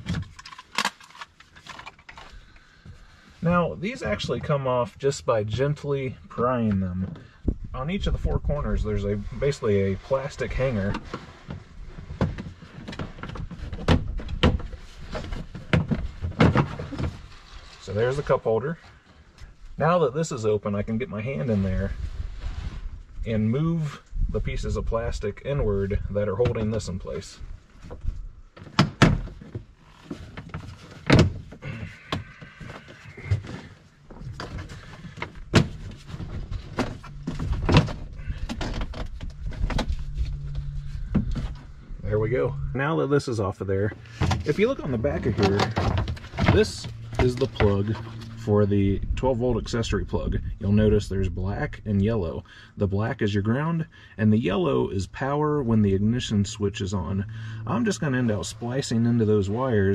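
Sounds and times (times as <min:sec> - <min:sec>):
low steady hum: 0:00.0 - 0:59.9
plastic rubbing: 0:44.0 - 0:48.5.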